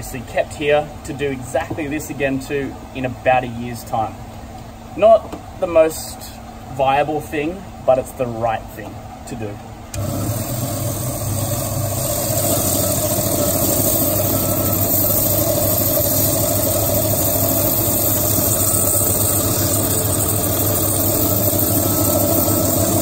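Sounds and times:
band saw cutting coral: 10.0s - 23.0s.

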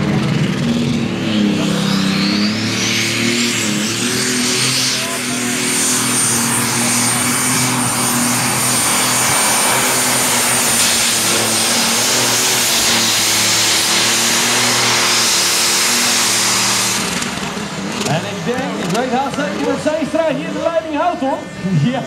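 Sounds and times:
diesel engine at full throttle: 0.0s - 22.0s
high turbo whistle: 1.1s - 17.4s.

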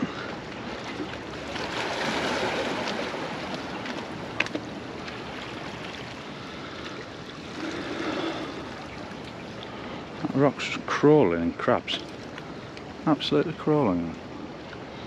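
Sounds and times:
waves washing among boulders: 0.0s - 11.0s.

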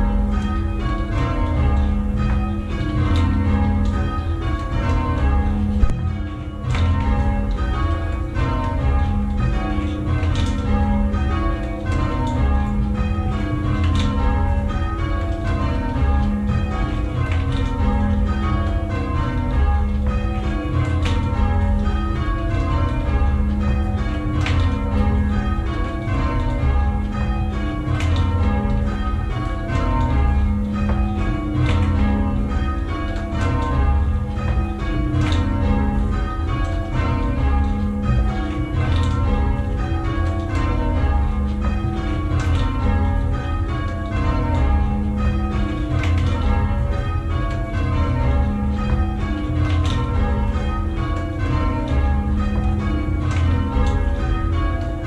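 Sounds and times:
church bells change ringing: 0.0s - 55.0s.

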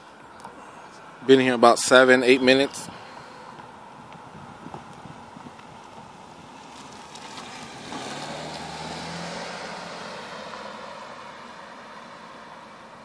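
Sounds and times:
car driving past slowly: 2.8s - 13.0s.

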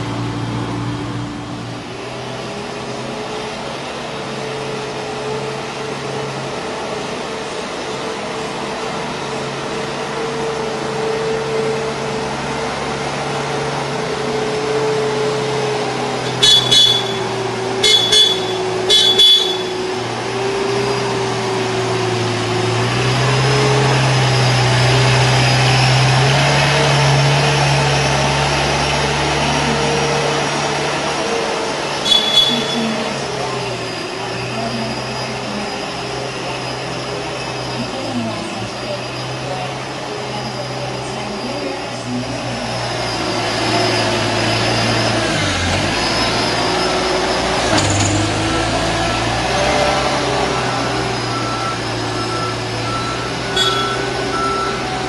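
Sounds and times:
forklift motor drone: 0.0s - 55.0s
high electronic beeper: 16.3s - 19.9s, 32.0s - 33.2s, 50.8s - 54.9s.

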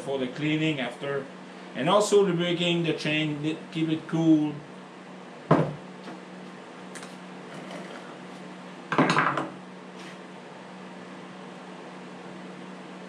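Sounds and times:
steady low hum: 0.0s - 13.0s
hard objects clattering on workbench: 8.9s - 9.6s.

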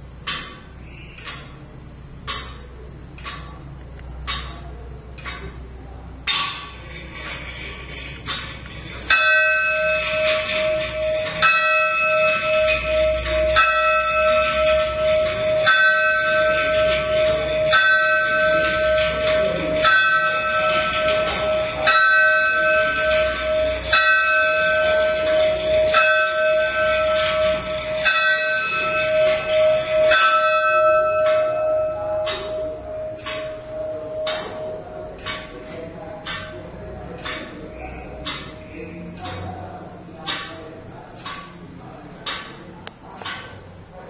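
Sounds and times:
steady hum: 0.0s - 44.0s
clock bell strokes: 8.8s - 38.8s.

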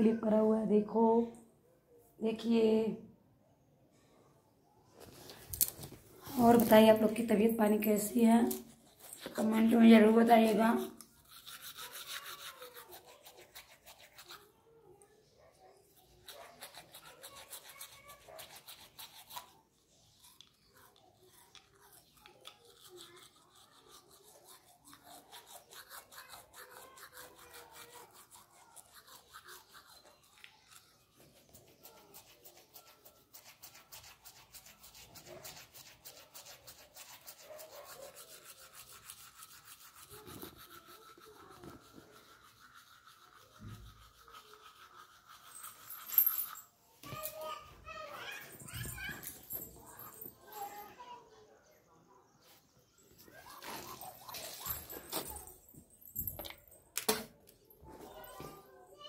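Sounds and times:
toothbrush scrubbing teeth: 5.6s - 46.8s, 53.2s - 55.4s.

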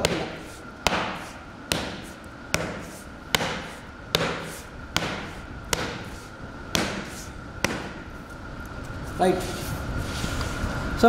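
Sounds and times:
hammer striking rubber sole: 0.0s - 6.2s, 6.8s - 8.1s
faint high hum: 0.0s - 11.0s.

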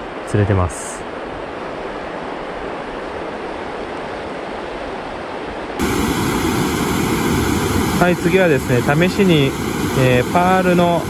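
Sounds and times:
mountain stream rushing: 0.0s - 11.0s
faint steady whine: 5.7s - 11.0s.

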